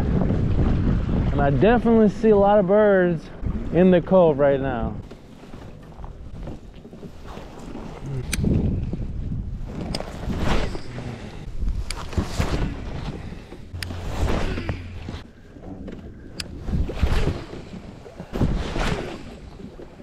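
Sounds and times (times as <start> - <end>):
wind buffeting microphone: 0.0 - 2.6, 3.3 - 4.1, 5.8 - 20.0
water lapping against hull: 4.8 - 20.0.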